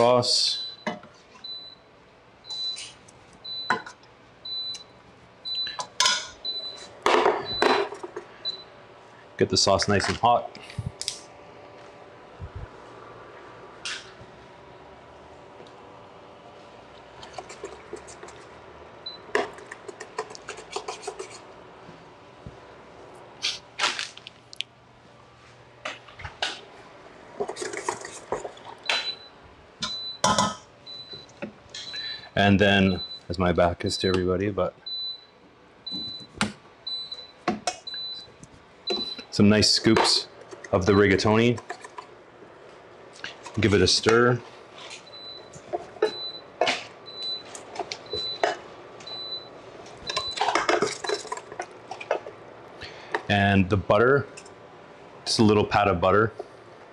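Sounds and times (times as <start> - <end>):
induction hob beeping: 28.8 - 32.2, 32.8 - 39.3, 45.0 - 50.4
pots and pans clattering: 50.2 - 52.2.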